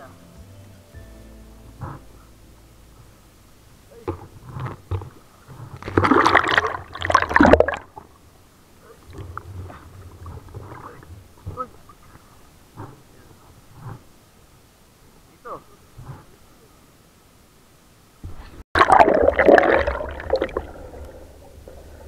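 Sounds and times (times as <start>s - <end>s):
water dribbling: 4.0s - 12.3s, 18.8s - 22.0s
water splashing and sloshing: 4.0s - 14.2s, 18.2s - 22.0s.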